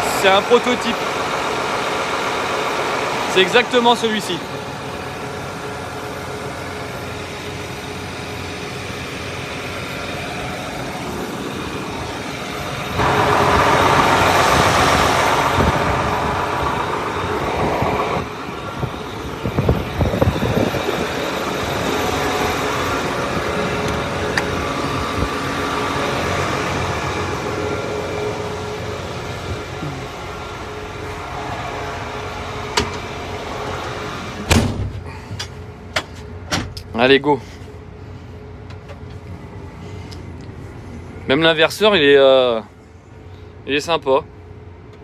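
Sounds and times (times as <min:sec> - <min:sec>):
tractor diesel engine idling: 0:00.0 - 0:45.0
loud rushing noise: 0:10.4 - 0:35.0.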